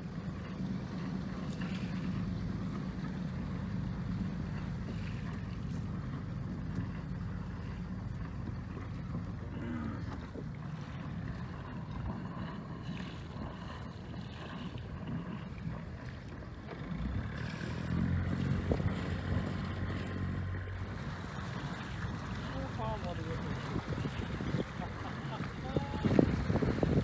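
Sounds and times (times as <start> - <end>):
boat engine running: 0.0 - 27.0
wind on microphone: 17.1 - 27.0.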